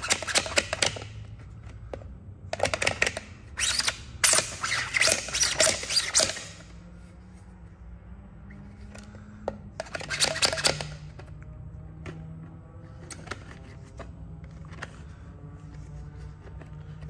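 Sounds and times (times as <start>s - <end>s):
plastic toy sword clicking and rattling: 0.0s - 1.2s, 9.8s - 11.4s.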